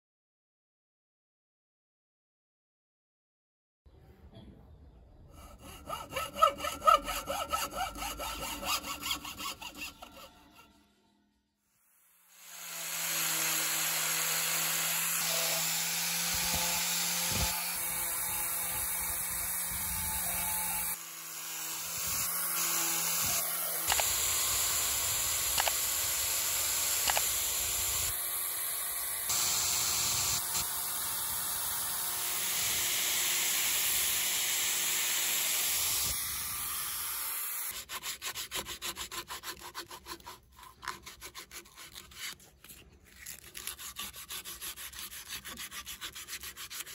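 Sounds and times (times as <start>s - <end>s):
sandpaper rasping on turning wood: 5.3s - 10.6s, 12.4s - 28.2s, 32.0s - 46.9s
angle grinder sanding: 5.3s - 10.8s, 12.3s - 46.9s.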